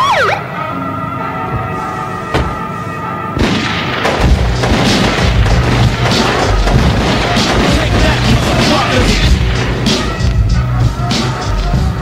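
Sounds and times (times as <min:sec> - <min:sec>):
siren tone: 0:00.0 - 0:03.4
gunshots and booms: 0:03.4 - 0:10.3
heavy low bass: 0:04.2 - 0:12.0.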